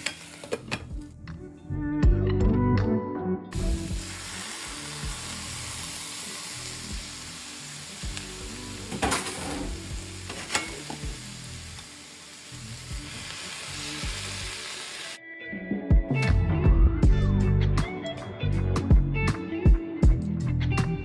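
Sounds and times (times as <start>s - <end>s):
vegetables sizzling in frying pan: 0.0s - 0.7s, 3.6s - 15.2s.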